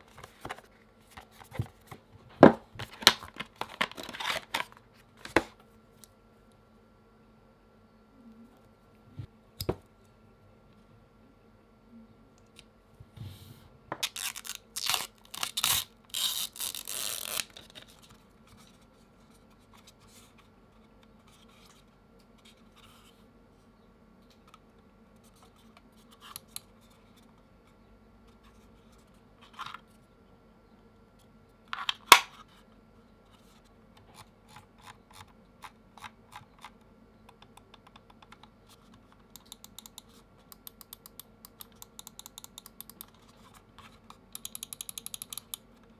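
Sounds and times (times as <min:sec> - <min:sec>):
rustling and scraping handling noise: 0:00.0 - 0:05.8, 0:25.1 - 0:30.1, 0:31.2 - 0:35.0.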